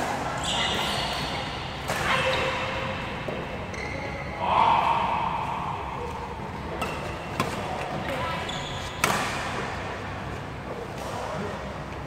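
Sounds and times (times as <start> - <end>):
shoes squeaking on court floor: 0.4 - 4.3, 6.7 - 9.3.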